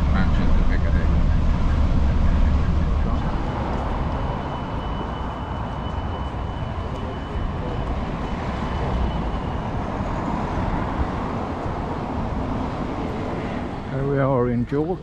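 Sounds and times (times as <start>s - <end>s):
faint high whine: 0.0s - 10.8s
street traffic: 0.0s - 15.0s.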